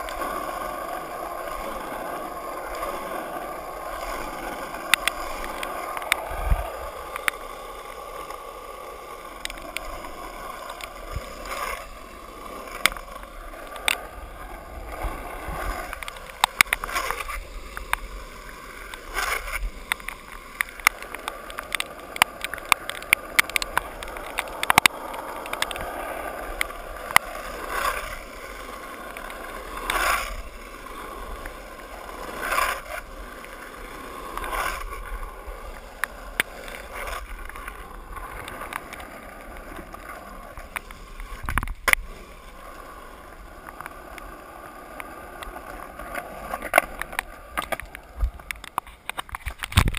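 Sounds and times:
skateboard wheels rolling on wet pavement: 0:00.0 - 0:49.9
sharp clicks: 0:19.8 - 0:26.0.

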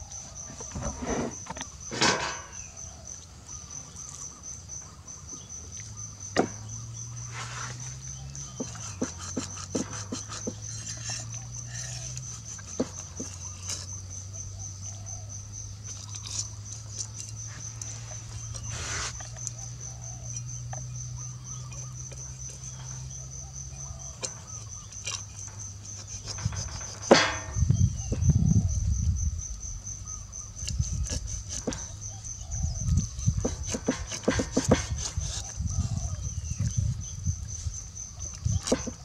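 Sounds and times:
cricket trilling: 0:00.0 - 0:39.0
cleaver knocking on chopping block: 0:33.4 - 0:35.1, 0:38.7 - 0:39.0.

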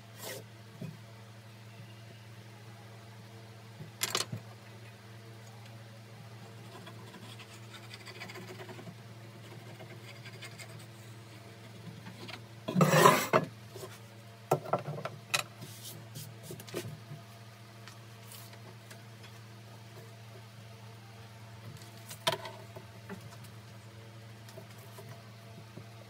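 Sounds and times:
board scraping on workbench: 0:12.7 - 0:13.4.

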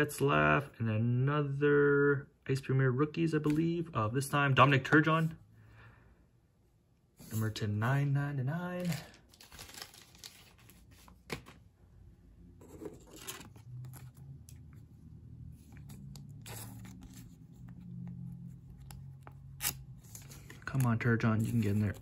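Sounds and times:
plastic sleeve rustling: 0:08.6 - 0:11.6.

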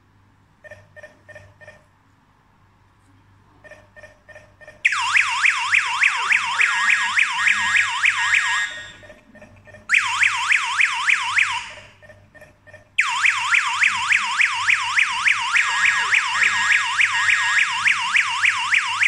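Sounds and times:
alarm siren wailing: 0:04.8 - 0:09.1, 0:09.9 - 0:12.0, 0:13.0 - 0:19.0.

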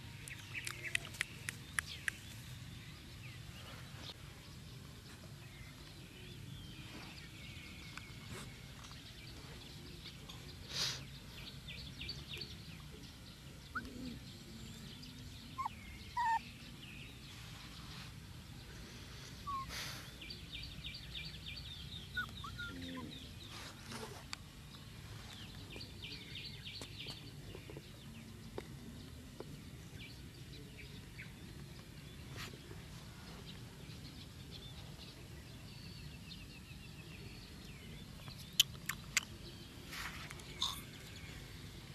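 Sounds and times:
low background noise: 0:00.0 - 0:41.9
bird chirps: 0:05.8 - 0:17.2, 0:19.4 - 0:23.7, 0:33.9 - 0:41.5.

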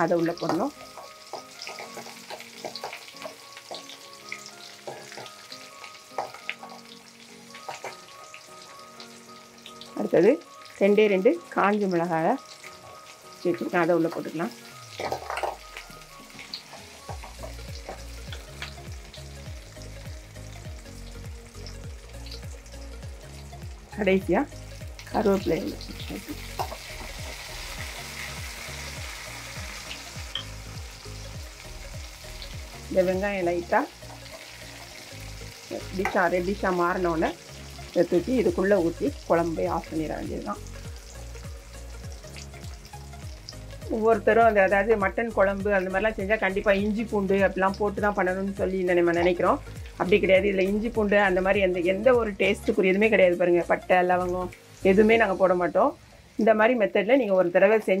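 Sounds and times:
onions sizzling in oil: 0:00.0 - 0:58.0
steel spoon stirring in pan: 0:00.8 - 0:03.9
crackles and pops: 0:14.9 - 0:18.8.

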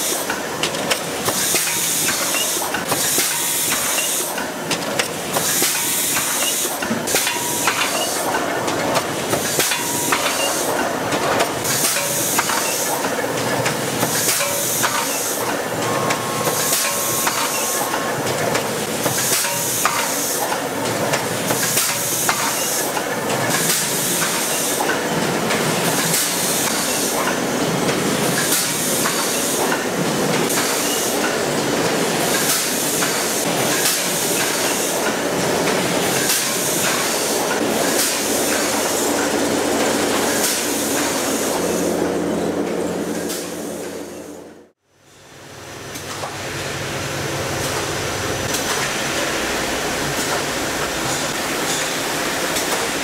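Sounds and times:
machine clatter: 0:00.0 - 0:41.8.

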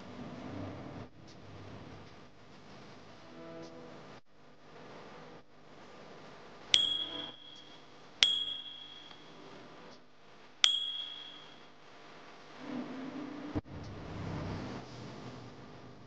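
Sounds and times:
high bell ringing: 0:06.8 - 0:09.5, 0:10.6 - 0:11.7.

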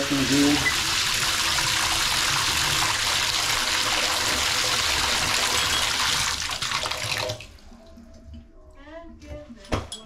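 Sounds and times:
water pouring into bathtub: 0:00.0 - 0:07.6.

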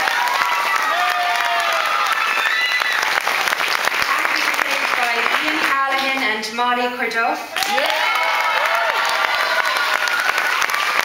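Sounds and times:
people cheering: 0:00.0 - 0:05.3, 0:07.6 - 0:11.0
audience clapping: 0:00.0 - 0:06.3, 0:07.6 - 0:11.0.

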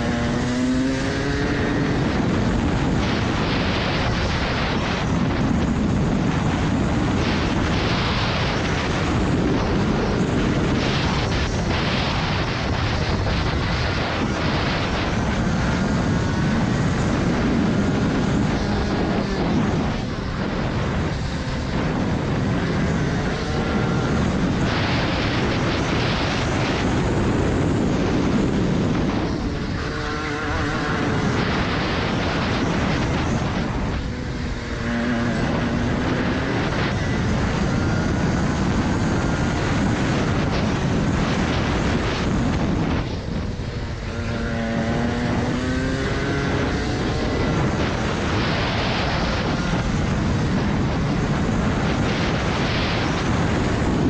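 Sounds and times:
kart engine racing: 0:00.0 - 0:54.0.

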